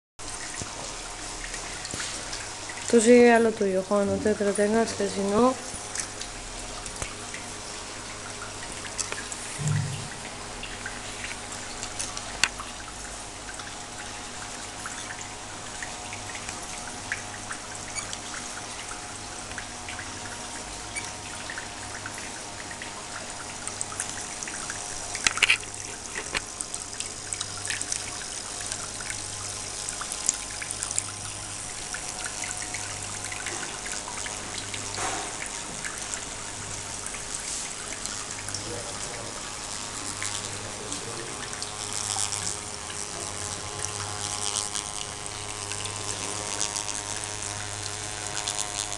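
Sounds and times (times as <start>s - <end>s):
low steady hum: 0.2s - 48.9s
water trickling and pouring: 0.2s - 48.9s
small clicks: 25.2s - 26.5s.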